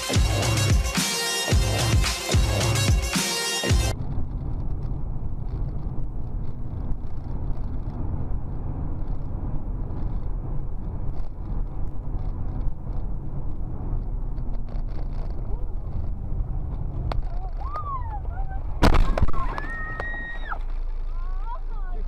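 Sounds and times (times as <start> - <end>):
car engine and road rumble: 0.0 - 22.0.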